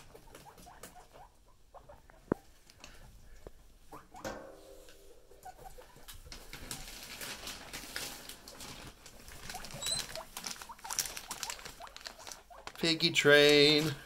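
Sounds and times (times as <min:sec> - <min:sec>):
guinea pig squeaks: 0:00.0 - 0:02.6, 0:03.8 - 0:04.3, 0:05.3 - 0:14.0
small feet rustling in shavings: 0:05.9 - 0:14.0.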